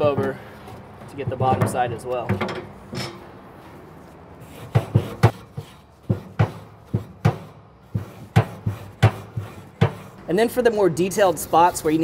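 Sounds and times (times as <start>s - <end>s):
wire brush scrubbing metal grate: 4.4s - 10.2s.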